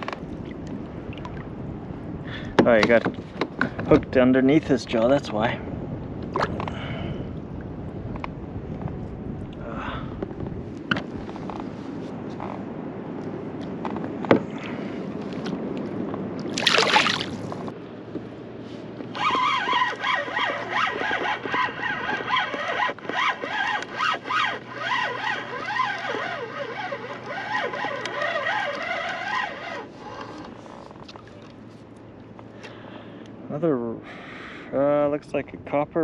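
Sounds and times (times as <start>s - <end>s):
fishing reel gears whining: 19.2s - 30.4s.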